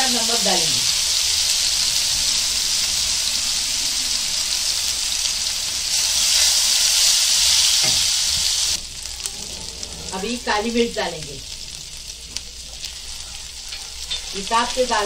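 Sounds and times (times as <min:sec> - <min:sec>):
paste sizzling in hot oil: 0:00.0 - 0:09.8.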